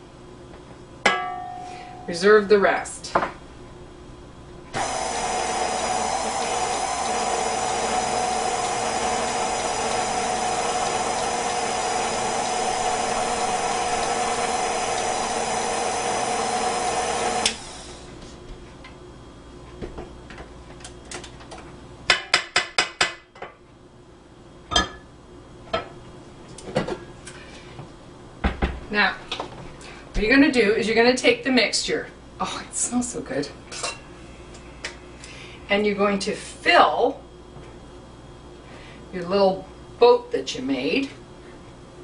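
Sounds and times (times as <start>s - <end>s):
electric stand mixer whining: 4.8s - 18.1s.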